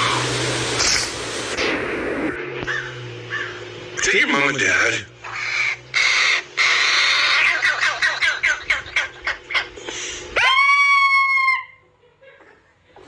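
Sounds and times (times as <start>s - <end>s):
fledgling crow begging calls: 2.7s - 3.7s, 5.2s - 9.7s.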